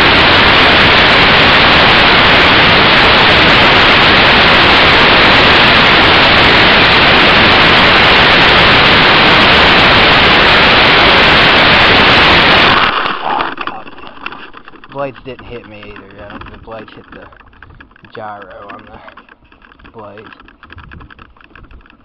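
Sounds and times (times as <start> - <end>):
toy helicopter rotors rushing: 0.0 - 22.0.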